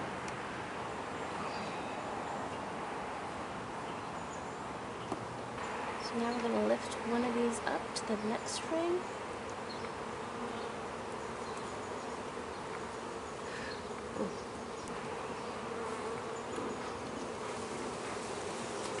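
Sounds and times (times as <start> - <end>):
bees buzzing: 5.0 - 19.0.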